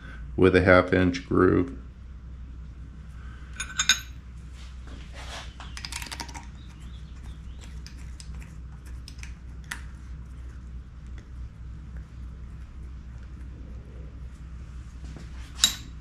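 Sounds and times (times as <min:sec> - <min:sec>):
steady low hum: 0:00.0 - 0:16.0
steel tools clinking: 0:03.6 - 0:04.2, 0:15.6 - 0:16.0.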